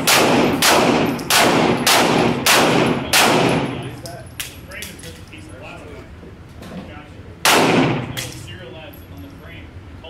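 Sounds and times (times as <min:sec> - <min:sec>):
pistol shots echoing indoors: 0:00.0 - 0:04.0, 0:07.4 - 0:08.4.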